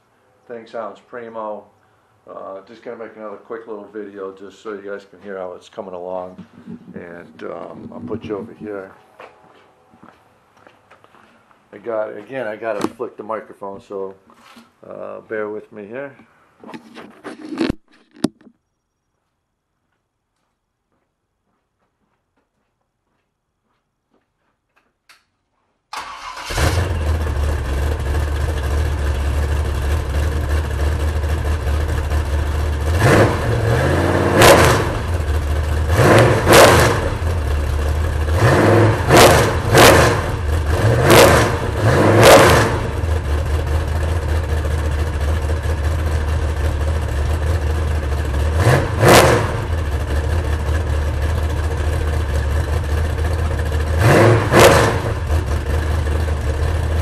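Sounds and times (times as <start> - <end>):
engine starting and idling: 25.9 - 33.6, 41.4 - 57.0
engine revving: 26.0 - 57.0.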